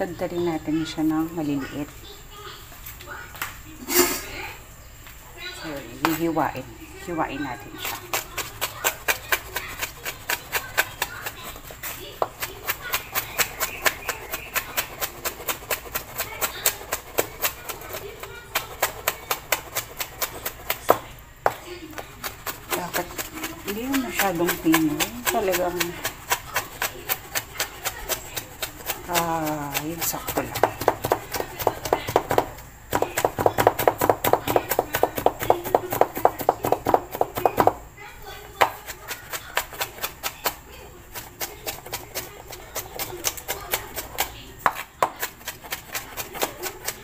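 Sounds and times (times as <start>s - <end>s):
knife chopping on wooden board: 7.8s - 37.8s, 38.6s - 47.0s.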